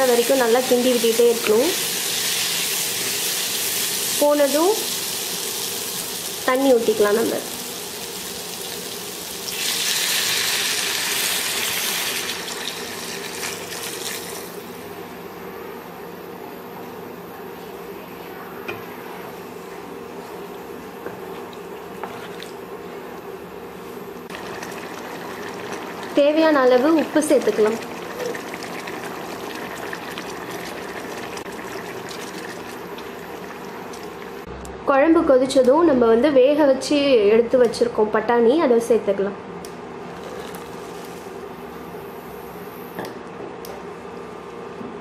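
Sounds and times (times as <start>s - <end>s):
curry bubbling in a pan: 24.3s - 34.4s.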